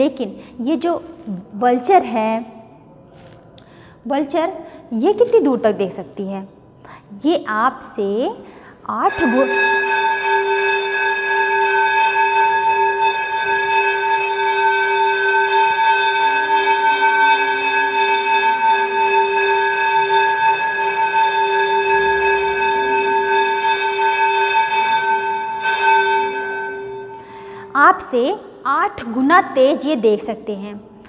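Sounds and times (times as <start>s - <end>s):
electric bell ringing: 8.9s - 27.2s.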